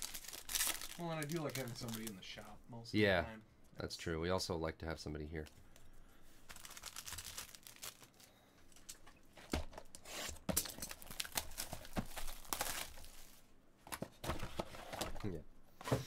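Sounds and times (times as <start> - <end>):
shrink wrap tearing and crinkling: 0.0 - 2.5, 6.5 - 9.0, 10.2 - 13.4.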